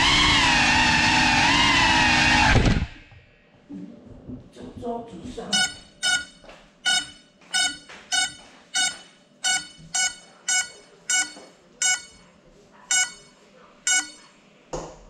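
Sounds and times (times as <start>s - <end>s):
short shrill beeps: 5.5s - 12.3s, 12.9s - 14.4s.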